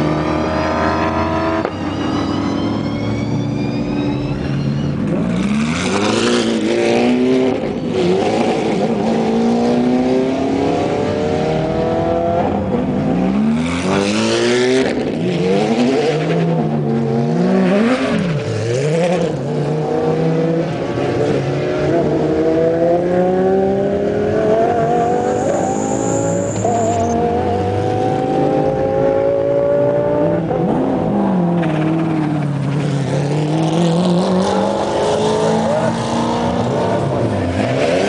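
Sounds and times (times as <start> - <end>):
race car engines revving: 0.0 - 38.0.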